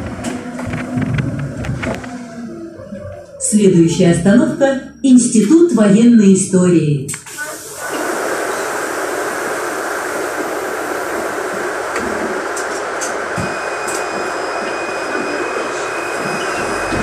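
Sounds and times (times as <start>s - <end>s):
thin high whine: 7.4s - 17.0s.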